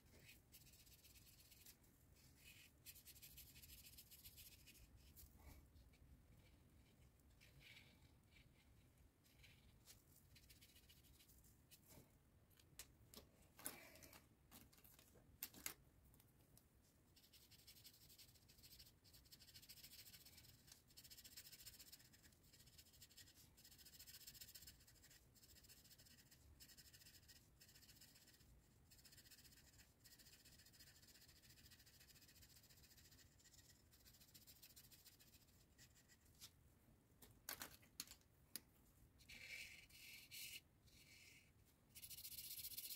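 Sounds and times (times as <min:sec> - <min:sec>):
marker scratching on paper: 0:17.2 - 0:36.3, 0:39.2 - 0:42.9.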